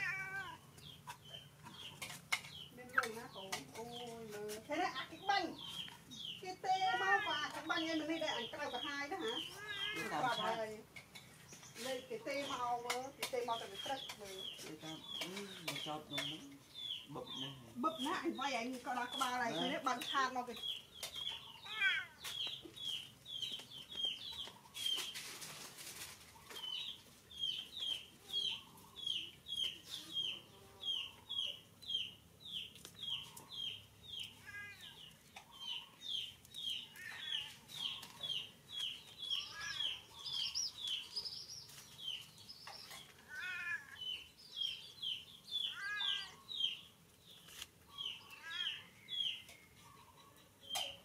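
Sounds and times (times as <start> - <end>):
birds chirping: 0.0 - 51.0.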